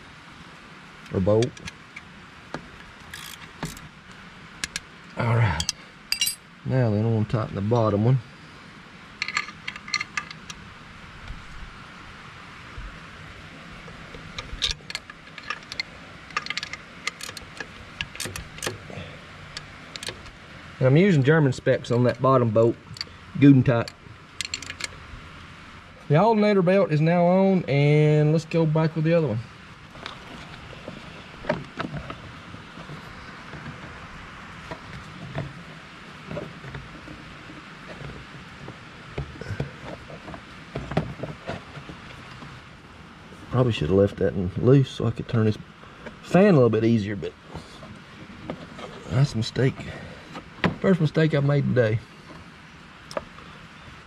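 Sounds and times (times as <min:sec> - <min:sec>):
steady background hiss: 0:00.0 - 0:54.0
wrench clicking: 0:03.1 - 0:03.8.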